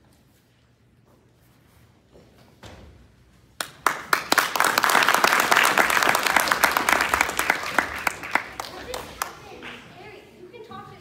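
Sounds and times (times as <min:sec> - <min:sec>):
audience applauding: 0:03.6 - 0:09.9.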